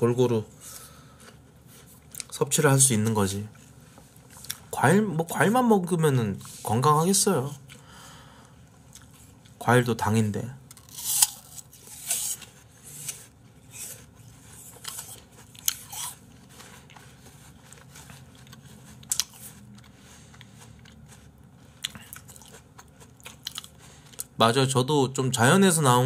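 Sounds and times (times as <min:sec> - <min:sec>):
people chewing crunchy apple: 0:10.7 - 0:24.4.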